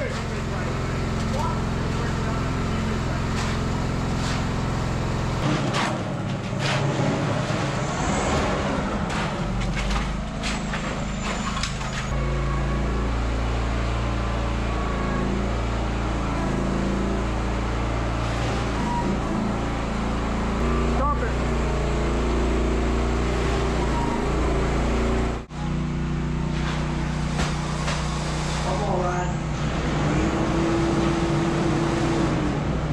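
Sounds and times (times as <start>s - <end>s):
shovels scraping wet concrete: 0.0s - 2.2s, 3.2s - 4.7s, 5.4s - 8.4s
engine running: 0.0s - 32.9s.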